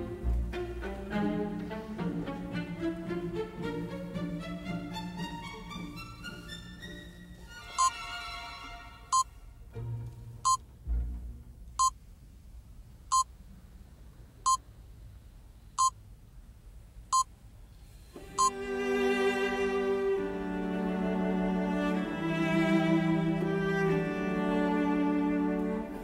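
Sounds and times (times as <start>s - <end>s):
string music: 0.0s - 12.8s, 18.1s - 26.0s.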